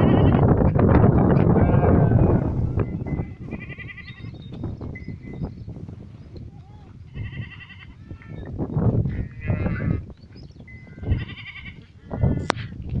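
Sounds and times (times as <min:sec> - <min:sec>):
goats bleating: 0:00.0 - 0:00.5, 0:01.4 - 0:04.3, 0:06.6 - 0:08.5, 0:09.1 - 0:10.1, 0:10.8 - 0:12.6
low rumbling noise: 0:00.0 - 0:04.2.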